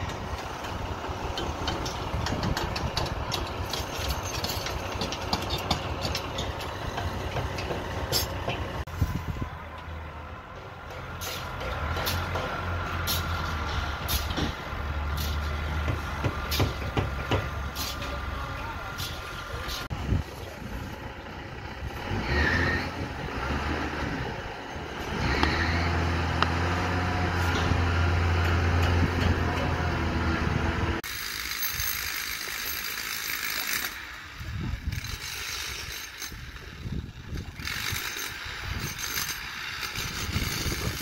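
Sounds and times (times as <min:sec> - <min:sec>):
heavy diesel engine humming: 0:00.0 - 0:31.1
scattered knocks: 0:15.8 - 0:17.6.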